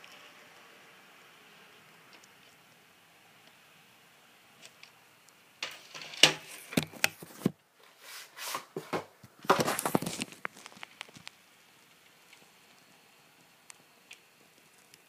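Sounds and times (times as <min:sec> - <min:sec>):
scraping and rustling: 0:05.6 - 0:12.6.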